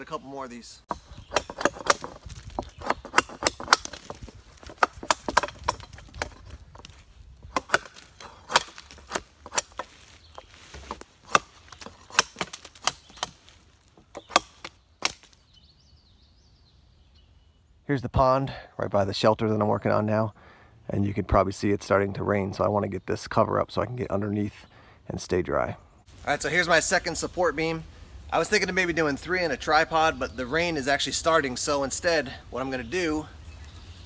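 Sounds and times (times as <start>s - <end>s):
knife chopping wooden branch: 0.9s - 15.4s.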